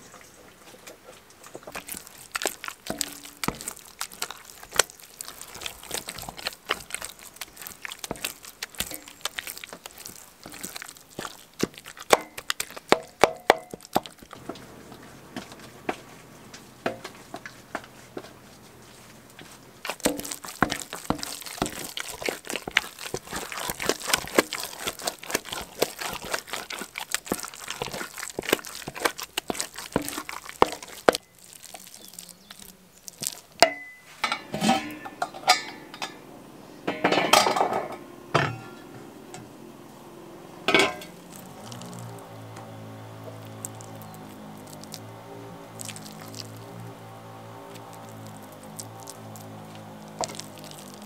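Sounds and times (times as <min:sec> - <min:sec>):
wooden spoon knocking on steel pot: 0:12.1 - 0:14.5
clinks of pot and dishware: 0:33.6 - 0:36.2, 0:36.9 - 0:39.0, 0:40.7 - 0:41.2.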